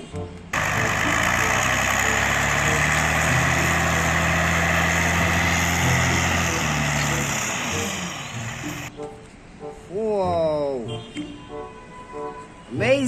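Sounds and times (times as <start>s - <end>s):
diesel engine running: 0.5s - 8.9s
soil being dumped: 0.6s - 8.9s.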